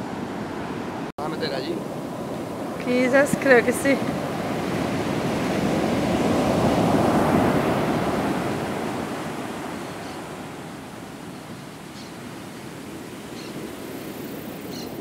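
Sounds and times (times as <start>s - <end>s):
ocean surf breaking: 0.0s - 15.0s.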